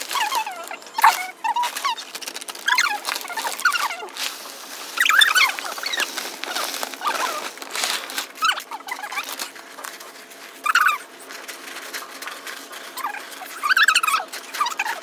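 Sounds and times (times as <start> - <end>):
potting soil rustling: 0.0 - 15.0
squeaky sped-up chattering voices: 8.4 - 11.2, 12.2 - 15.0.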